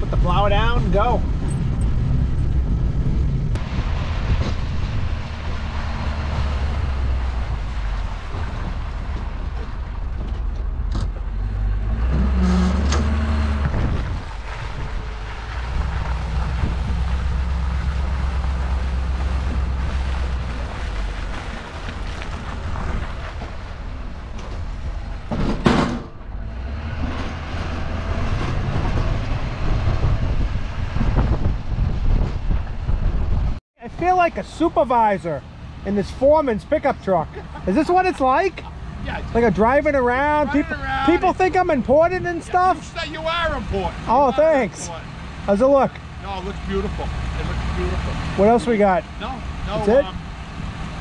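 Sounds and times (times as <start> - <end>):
loud thump: 25.3 - 26.3.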